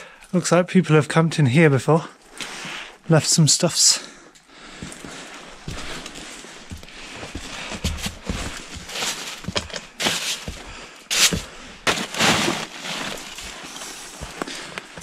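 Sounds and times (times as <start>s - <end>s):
boots crunching through snow: 5.6s - 15.0s
boot kicking snow: 10.0s - 14.3s.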